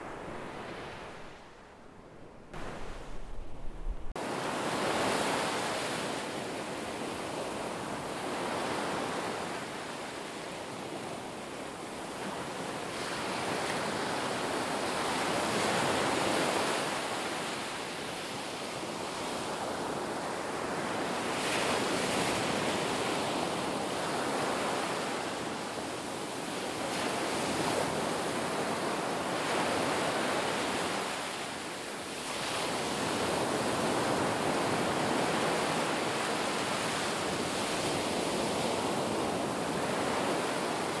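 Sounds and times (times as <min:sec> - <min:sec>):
ocean waves washing in: 0:00.0 - 0:06.4.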